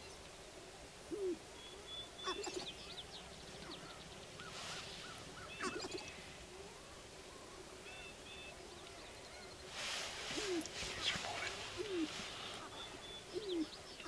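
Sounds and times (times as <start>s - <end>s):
grouse calling: 1.1s - 14.0s.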